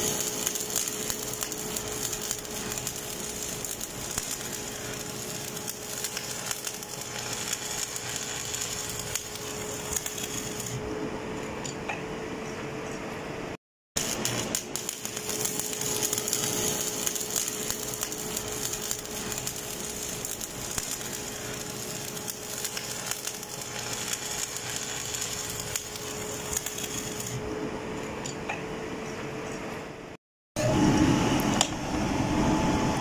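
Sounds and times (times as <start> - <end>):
welding arc crackling: 0.0 - 10.8, 14.0 - 27.4.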